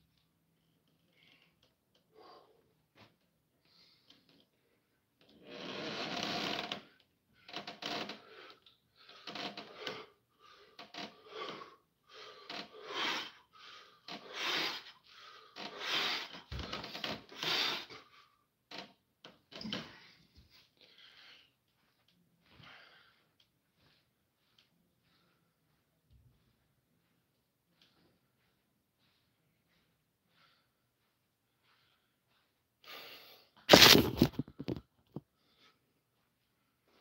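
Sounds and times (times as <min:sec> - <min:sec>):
man breathing hard: 0:08.2 - 0:18.5, 0:19.7 - 0:21.6, 0:22.4 - 0:25.9, 0:27.8 - 0:33.7.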